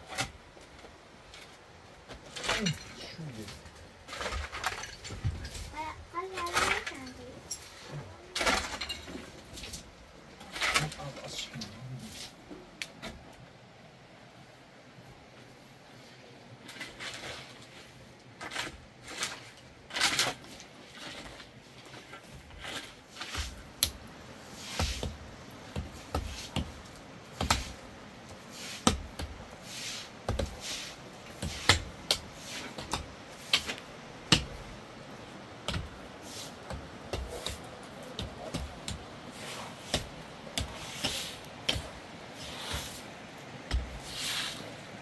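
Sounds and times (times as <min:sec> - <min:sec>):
shovel scraping: 0:02.2 - 0:05.8, 0:06.4 - 0:09.8, 0:16.7 - 0:23.8, 0:24.5 - 0:25.2, 0:28.4 - 0:34.6, 0:35.7 - 0:45.0
pickaxe striking rocky ground: 0:31.4 - 0:34.6, 0:43.7 - 0:44.0.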